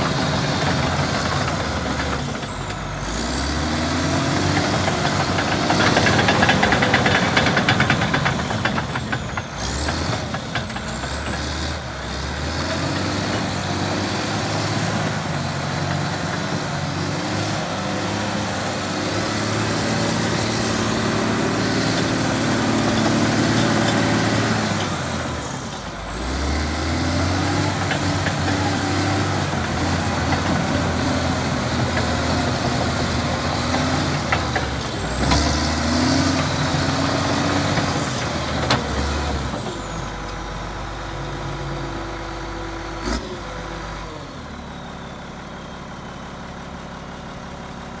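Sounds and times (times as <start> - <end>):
diesel engine running: 0.0 - 48.0
steel tracks clattering: 4.5 - 11.6.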